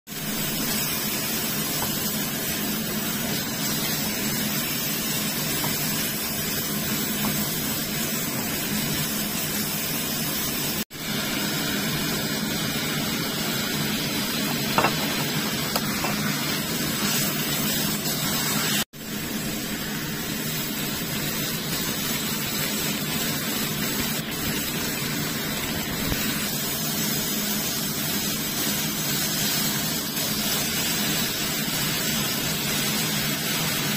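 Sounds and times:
meat sizzling in a wok: 0.1 - 33.9.

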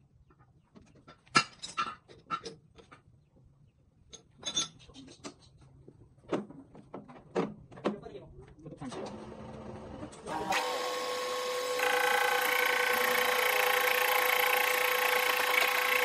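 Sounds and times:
metallic clinks and clanks: 4.1 - 5.5.

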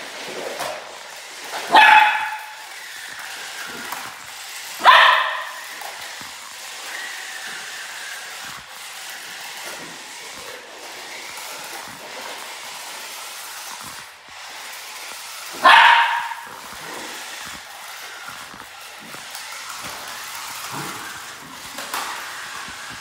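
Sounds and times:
dog barking: 1.7 - 2.6, 4.8 - 5.6, 15.6 - 16.5.

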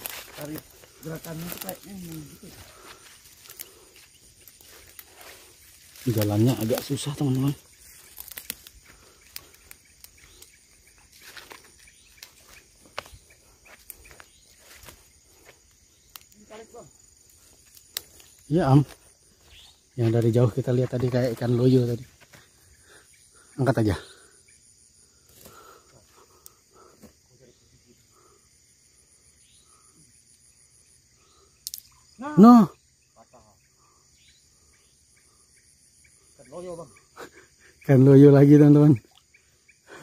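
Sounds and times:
twigs snapping: 0.0 - 16.6, 17.3 - 19.5, 31.6 - 31.9
footsteps crunching through brush: 0.0 - 22.6
insects trilling: 0.0 - 40.0.

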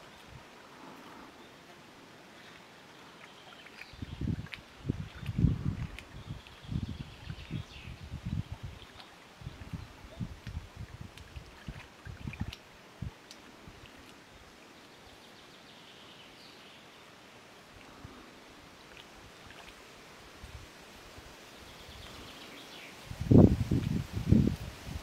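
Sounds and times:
soft outdoor hiss: 0.0 - 25.0
light high-pitched ticks: 12.5 - 14.2.

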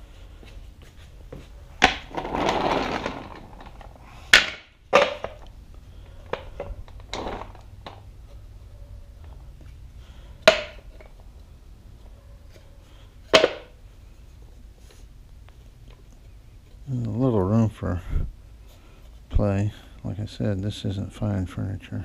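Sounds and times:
wooden boards scraping: 1.8 - 5.3
wooden boards knocking: 10.5 - 10.8, 13.3 - 13.7.

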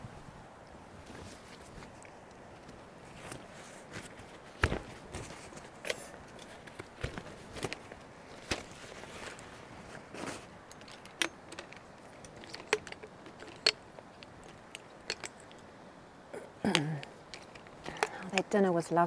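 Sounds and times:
faint steady hiss: 0.0 - 19.0
sharp clicks and metal clinks: 10.7 - 15.6.

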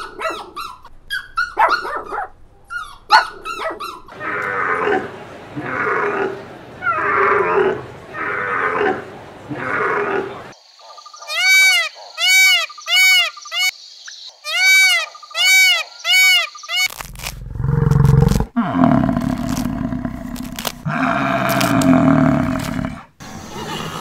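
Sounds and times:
peacock calling: 10.8 - 18.4.

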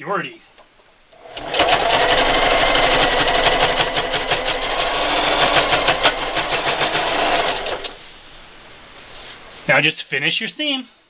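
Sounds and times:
electric sewing machine running: 1.2 - 8.0.

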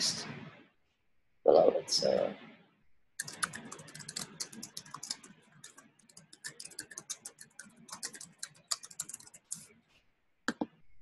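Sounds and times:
typing on a keyboard: 3.2 - 9.7.

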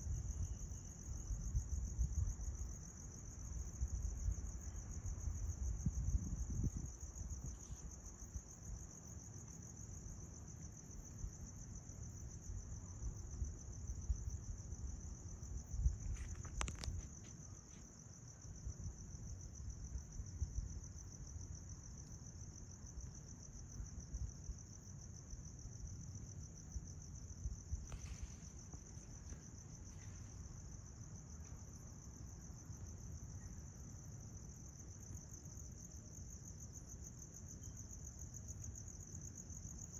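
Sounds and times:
wind rumble on microphone: 0.0 - 9.2, 12.1 - 17.6, 18.4 - 21.8, 26.8 - 31.3
crickets trilling: 0.0 - 39.9.

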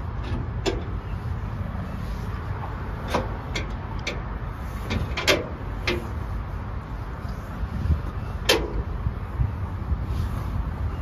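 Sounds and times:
steady low rumble: 0.0 - 11.0
sharp clicks and knocks: 0.2 - 1.0, 3.0 - 6.1, 8.4 - 8.9.

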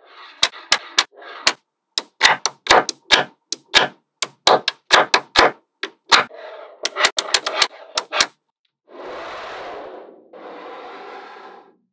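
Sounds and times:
magnetic balls clicking together: 2.0 - 6.2.

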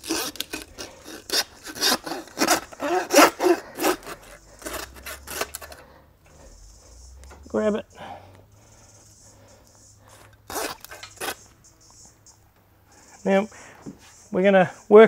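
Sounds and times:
hand saw cutting through bone: 0.0 - 5.8, 10.4 - 11.4.

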